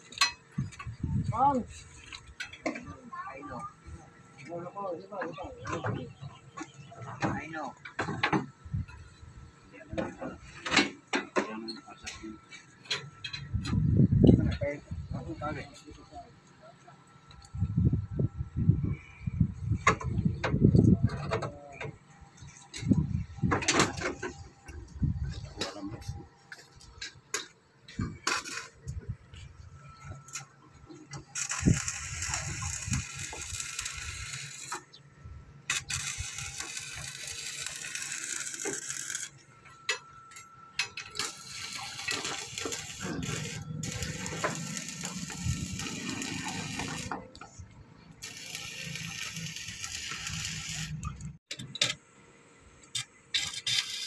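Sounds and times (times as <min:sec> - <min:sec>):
arc welder hissing: 0:31.2 - 0:35.0, 0:35.6 - 0:39.4, 0:41.2 - 0:47.4, 0:48.2 - 0:51.4, 0:52.9 - 0:54.0.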